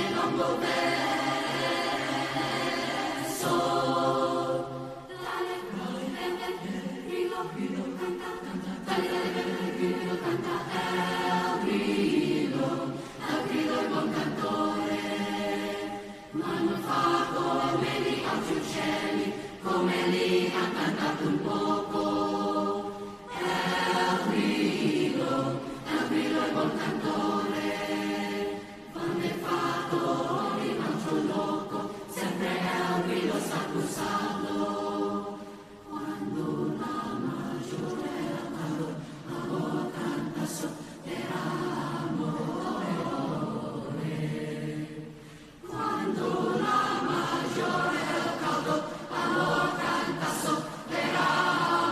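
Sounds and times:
children's choir singing: 0:00.0 - 0:51.9
singers breathing: 0:12.8 - 0:13.4, 0:19.3 - 0:19.6, 0:38.9 - 0:39.3, 0:45.0 - 0:45.7.

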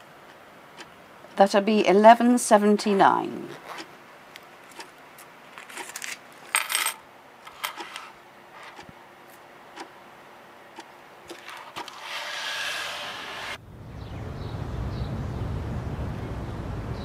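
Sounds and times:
coins clinking on a counter: 0:06.5 - 0:08.0.

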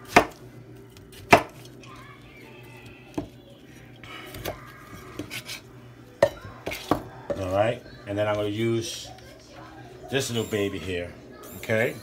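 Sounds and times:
knife slicing and scraping: 0:04.2 - 0:05.7.

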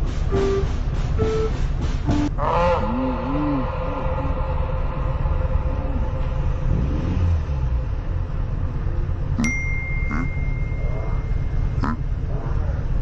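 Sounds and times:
motorcycles idling: 0:00.0 - 0:13.0
sharp ding: 0:09.4 - 0:11.8.

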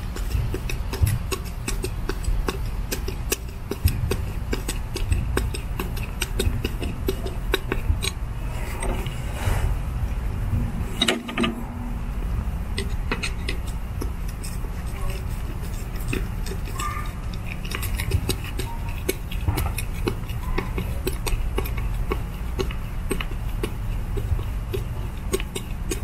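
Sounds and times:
low steady rumble: 0:00.0 - 0:26.0
soft rush: 0:08.3 - 0:12.3.

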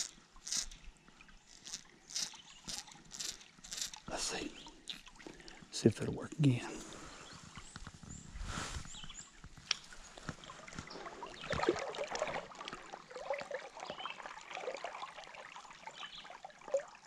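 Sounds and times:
small clicks and rustles: 0:00.0 - 0:04.1, 0:07.4 - 0:11.8
creek water trickling: 0:00.0 - 0:17.0.

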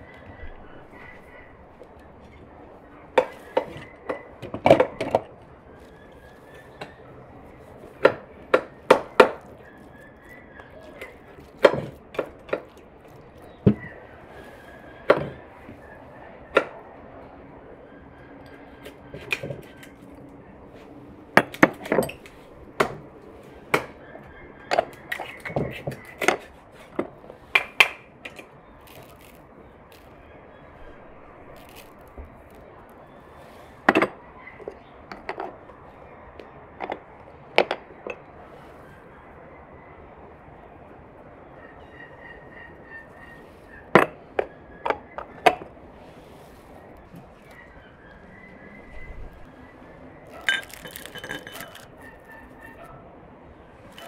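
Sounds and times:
glass and ceramic kitchenware clinking: 0:50.4 - 0:51.9.

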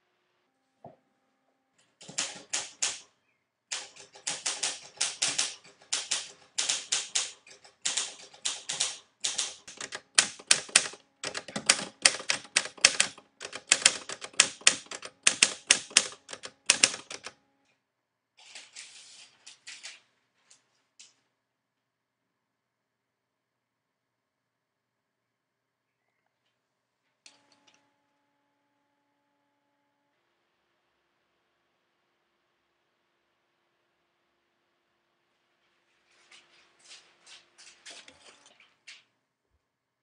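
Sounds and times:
typewriter key clacks: 0:02.0 - 0:03.0, 0:03.7 - 0:17.4.

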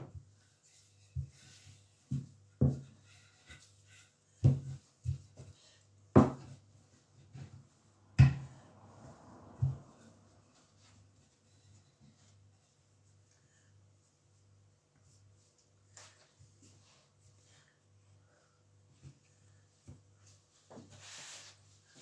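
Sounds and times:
rolling pin rolling dough: 0:00.0 - 0:08.5.

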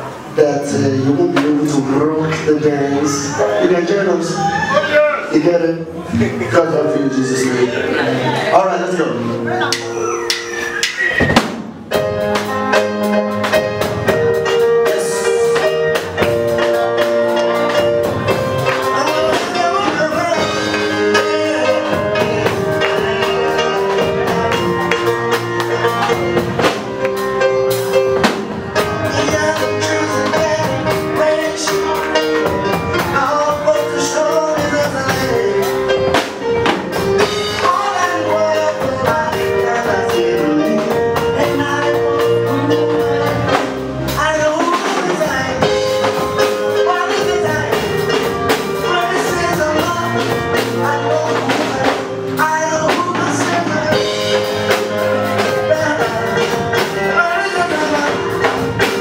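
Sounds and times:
drum kit: 0:00.0 - 0:59.0
keyboard: 0:00.0 - 0:59.0
choir singing gospel: 0:14.6 - 0:44.0.

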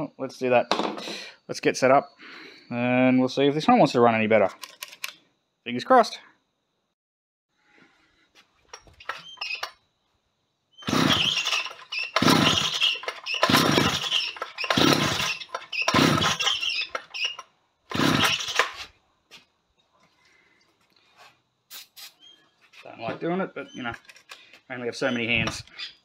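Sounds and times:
engine turning over: 0:10.8 - 0:18.8
chainsaw recoil starter pulls: 0:10.8 - 0:18.9.

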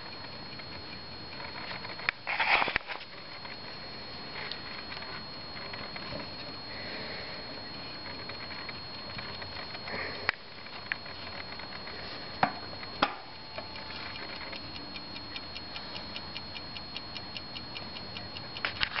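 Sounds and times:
clock ticking: 0:12.8 - 0:19.0.

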